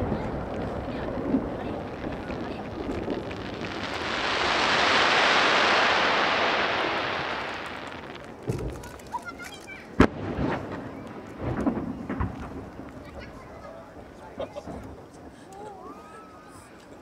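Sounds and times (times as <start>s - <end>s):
firework shell bursting: 0.0s - 12.6s.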